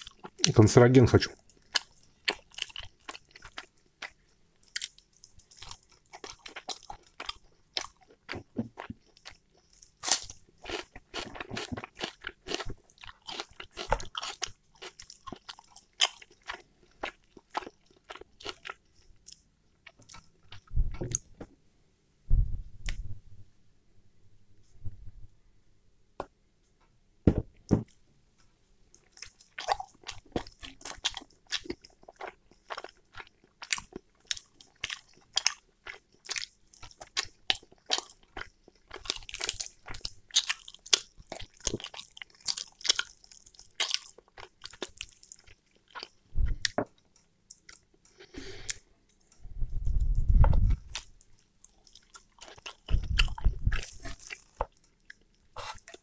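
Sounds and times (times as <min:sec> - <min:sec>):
chewing and biting chicken: 0:01.5 - 0:20.7, 0:29.0 - 0:46.8, 0:50.6 - 0:56.0
dull low thumps: 0:20.7 - 0:21.2, 0:22.3 - 0:23.3, 0:49.4 - 0:51.0, 0:52.9 - 0:53.8.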